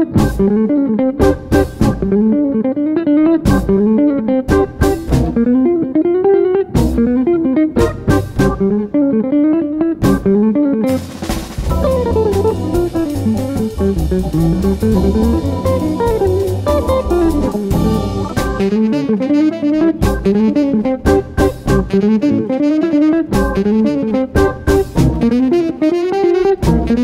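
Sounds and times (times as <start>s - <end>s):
bass: 0.0s - 2.6s, 3.3s - 5.9s, 6.7s - 9.2s, 9.9s - 25.7s, 26.5s - 27.0s
drum kit beat: 0.0s - 2.6s, 3.4s - 5.9s, 6.7s - 9.0s, 10.0s - 27.0s
plucked guitar melody: 0.0s - 27.0s.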